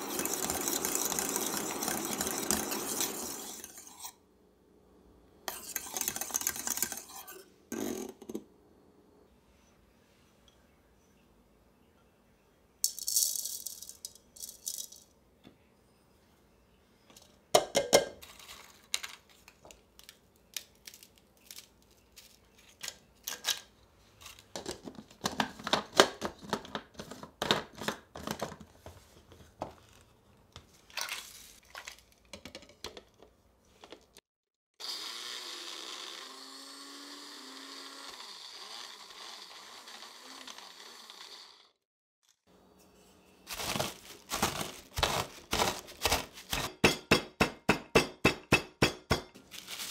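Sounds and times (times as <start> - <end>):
blender motor whirring: 0.0 - 3.8, 34.8 - 41.8
crumbs rattling into plastic cup: 43.5 - 46.7.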